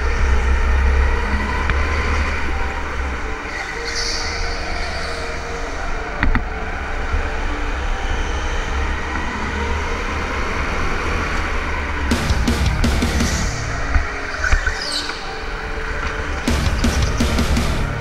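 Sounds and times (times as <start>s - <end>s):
sharp knock: 12.1s - 14.7s.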